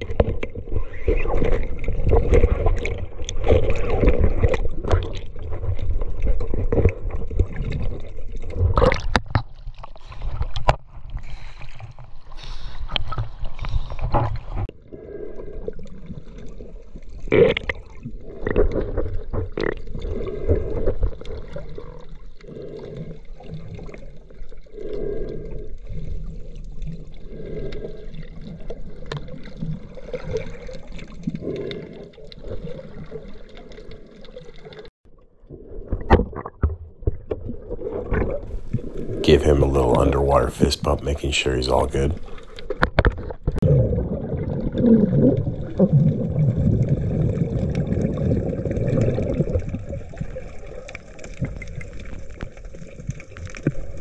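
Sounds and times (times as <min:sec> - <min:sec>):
water sloshing and splashing: 0:00.0 - 0:14.7, 0:25.9 - 0:34.9.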